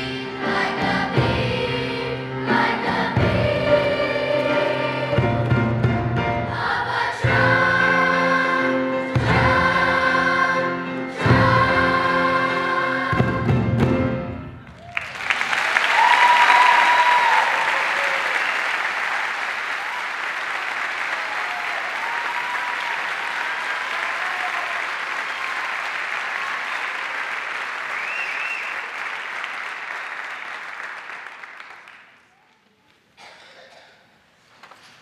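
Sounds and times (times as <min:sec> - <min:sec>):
audience applauding: 0:14.6 - 0:32.7.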